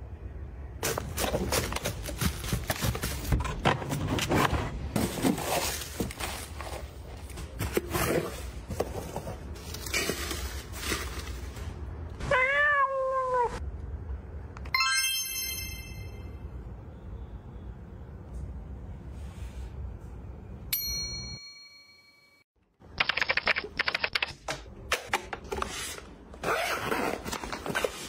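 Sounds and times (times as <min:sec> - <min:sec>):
cat meowing: 0:12.2 - 0:13.6.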